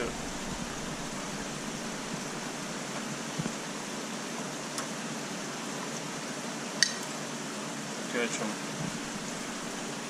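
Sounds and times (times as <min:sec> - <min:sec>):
steady rushing hiss: 0:00.0 - 0:05.3, 0:07.6 - 0:10.0.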